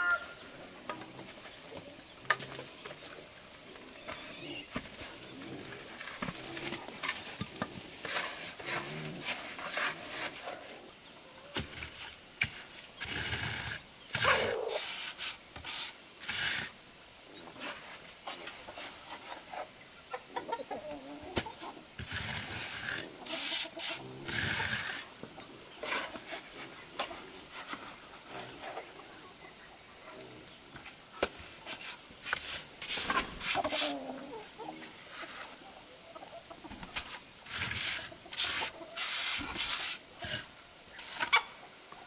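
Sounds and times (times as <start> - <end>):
trowel scraping mortar: 11.6 - 16.7, 22.0 - 25.1, 31.7 - 34.1, 37.0 - 41.4
chickens clucking: 18.3 - 30.3, 33.4 - 39.3, 41.0 - 42.0.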